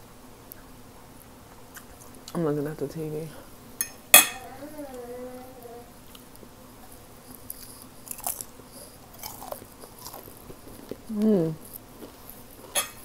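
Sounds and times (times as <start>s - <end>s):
soft chewing: 6.0s - 13.0s.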